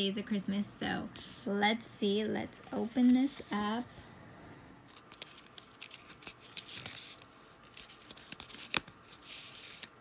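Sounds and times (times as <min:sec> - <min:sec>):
paper crinkling and rubbing: 0:02.6 - 0:03.8, 0:04.9 - 0:10.0.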